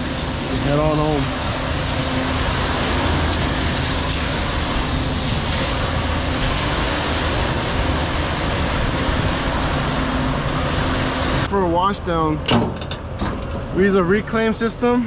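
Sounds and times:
hose water jet hissing: 0.0 - 11.5
truck engine humming: 0.0 - 13.2.

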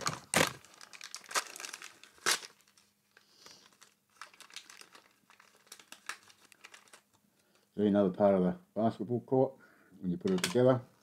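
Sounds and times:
plastic packaging crinkling: 0.0 - 7.2.

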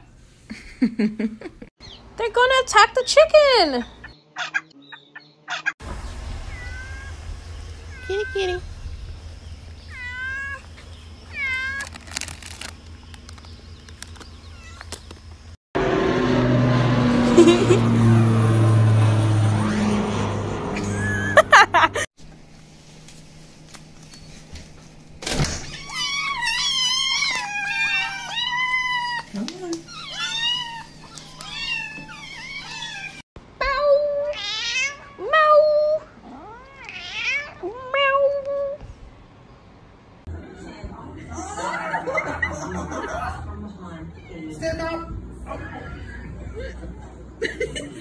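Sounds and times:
loud low hum with held tones: 5.8 - 27.7
cat meowing: 6.5 - 7.2, 9.9 - 10.7, 11.3 - 11.9, 25.6 - 38.8
chip bag crackling: 11.5 - 15.3.

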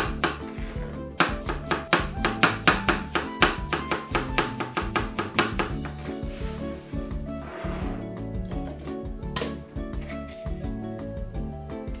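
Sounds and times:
knife chopping on cutting board: 0.0 - 6.1
background music: 0.0 - 12.0.

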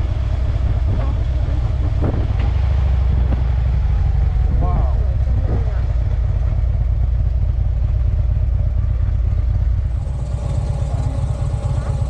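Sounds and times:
motorcycle engine rumbling: 0.0 - 12.0.

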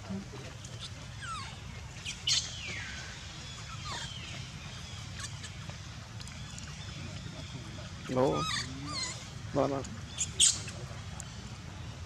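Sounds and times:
baby monkey squealing: 0.8 - 3.0, 3.6 - 4.2, 5.1 - 5.6, 8.2 - 9.4, 10.1 - 10.8.

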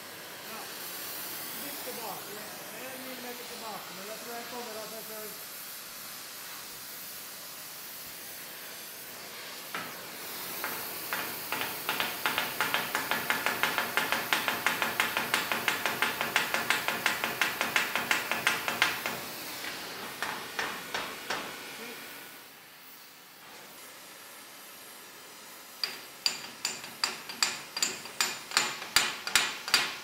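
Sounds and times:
gas torch hissing: 0.0 - 30.0
hammer striking hot rivet: 9.7 - 21.6, 25.8 - 30.0.

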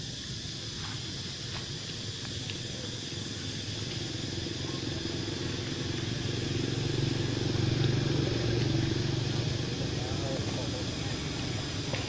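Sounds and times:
passing vehicle engine hum: 3.8 - 12.0.

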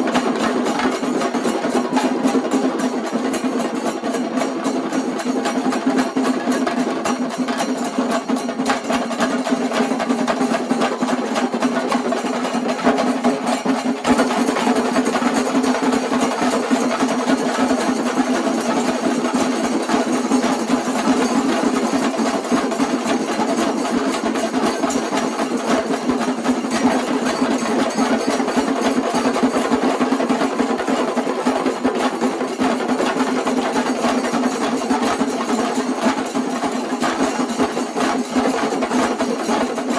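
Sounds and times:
hand cymbals clashing: 0.0 - 30.8
drums beaten fast with sticks: 0.0 - 39.9.

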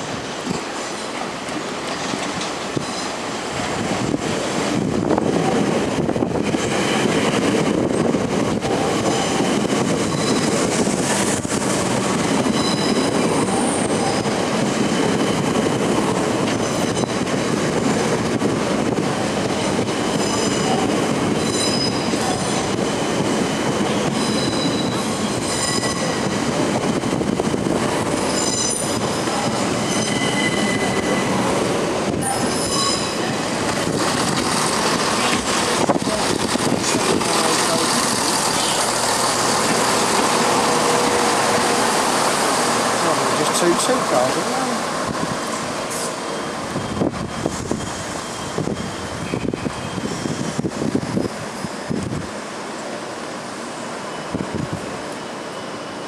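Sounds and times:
train wheels rumbling on rail: 0.0 - 56.0
train brakes squealing: 2.8 - 3.3, 8.8 - 11.5, 12.2 - 17.3, 19.7 - 26.4, 28.1 - 31.5, 32.2 - 33.6, 37.3 - 39.0, 45.9 - 51.9.

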